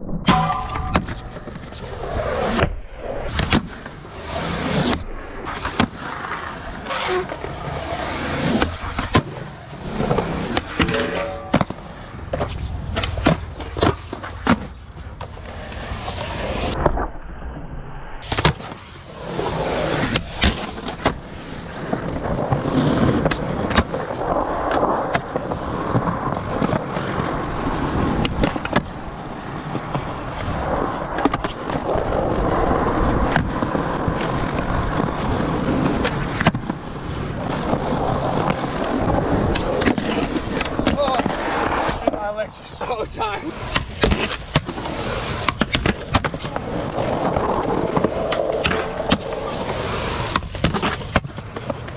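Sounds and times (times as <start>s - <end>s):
skateboard wheels rolling on concrete: 0.9s - 17.2s, 18.2s - 51.9s
skateboard pops and clacks: 3.3s - 4.0s, 4.8s - 6.1s, 18.2s - 18.9s, 20.0s - 27.3s, 27.9s - 29.0s, 29.6s - 36.8s, 37.4s - 42.2s, 43.6s - 51.9s.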